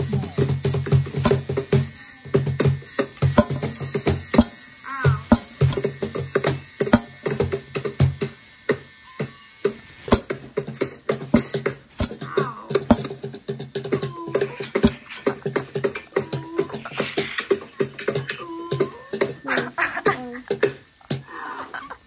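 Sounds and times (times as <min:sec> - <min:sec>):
sharp clicks and knocks: 0:05.2 - 0:19.7.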